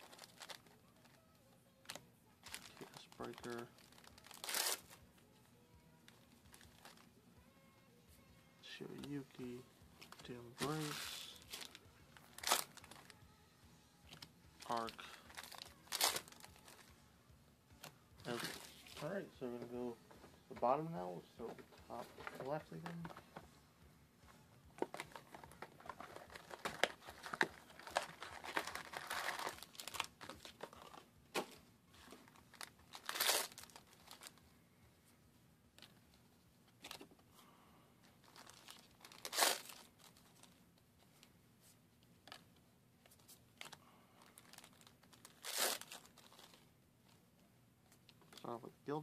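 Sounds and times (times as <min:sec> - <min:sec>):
foil packs crinkling: 0:01.8 - 0:05.0, 0:14.1 - 0:16.8, 0:24.8 - 0:31.5, 0:32.2 - 0:34.4, 0:38.2 - 0:40.6, 0:43.6 - 0:46.6
foil packs ripping open: 0:02.4 - 0:05.0, 0:14.7 - 0:16.8, 0:24.8 - 0:31.0, 0:32.5 - 0:34.4, 0:38.3 - 0:40.2, 0:43.6 - 0:46.6
cards rustling and clicking: 0:08.7 - 0:13.2, 0:14.1 - 0:16.9, 0:24.7 - 0:34.4.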